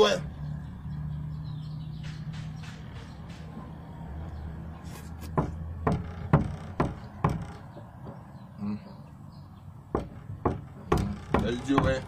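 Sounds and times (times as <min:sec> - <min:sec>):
sharp knocks: 0:02.0 - 0:03.9, 0:05.2 - 0:08.4, 0:09.9 - 0:12.0.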